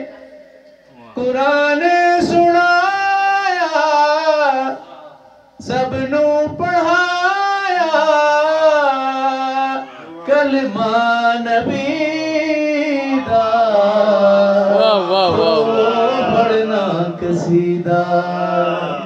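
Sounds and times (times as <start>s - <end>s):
man singing: 1.2s - 4.8s, 5.6s - 19.0s.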